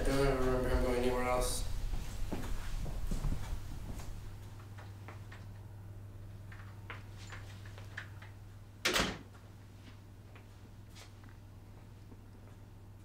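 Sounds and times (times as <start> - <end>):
footsteps: 0.0 - 5.5
steady low hum: 0.0 - 13.0.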